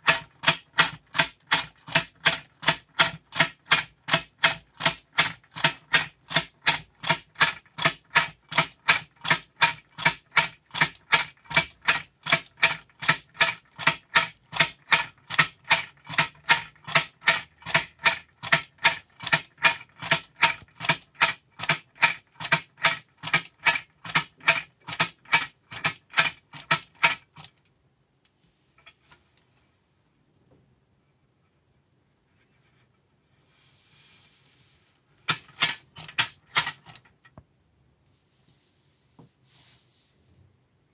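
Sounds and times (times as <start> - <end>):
clockwork toy clacking: 0.0 - 27.6, 35.3 - 37.2
faint handling rustle: 38.1 - 40.5.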